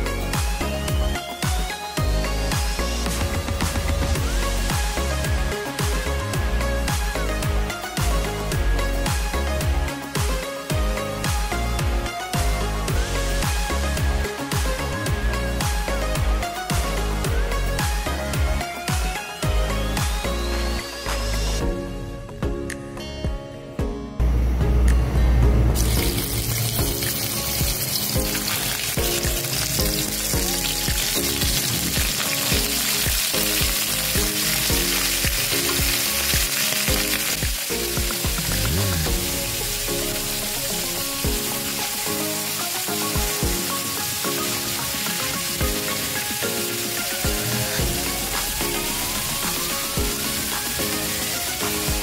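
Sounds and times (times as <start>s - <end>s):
background music: 0.0s - 52.0s
chicken sizzling in oil: 25.8s - 52.0s.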